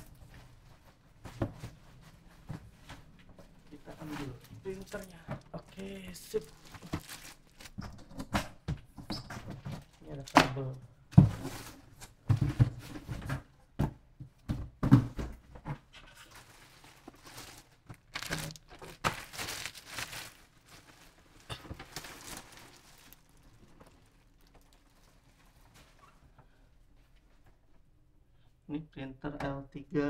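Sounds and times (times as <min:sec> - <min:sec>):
plastic bag crinkling: 0:03.7 - 0:07.8, 0:16.3 - 0:25.8.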